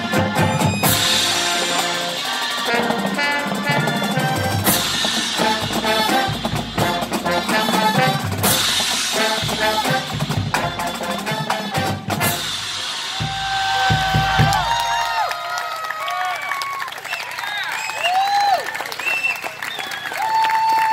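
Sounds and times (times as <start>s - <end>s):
brass horns playing: 0.0s - 14.7s
snare and bass drums: 0.0s - 15.1s.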